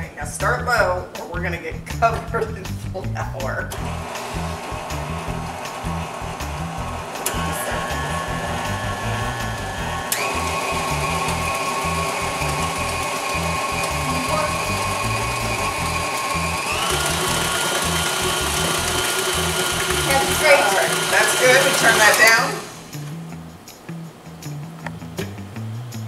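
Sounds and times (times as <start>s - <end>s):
stand mixer motor whine: 3.8s - 22.9s.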